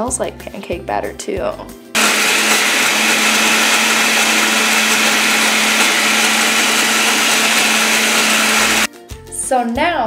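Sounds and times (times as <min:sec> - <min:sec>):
blender whirring: 0:02.0 - 0:08.9.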